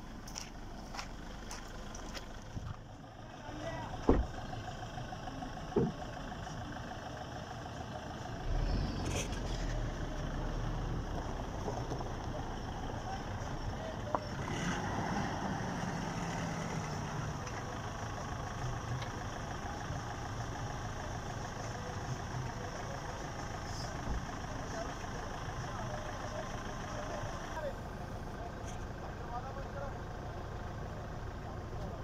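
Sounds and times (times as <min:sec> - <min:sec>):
tyres on rocky gravel: 0:00.0 - 0:03.8
off-road vehicle engines: 0:00.0 - 0:32.0
short thump: 0:04.0 - 0:04.3.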